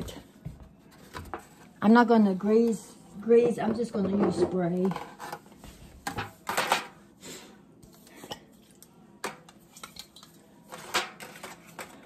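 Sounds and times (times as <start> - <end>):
foil pans crinkling and clattering: 10.7 - 12.0.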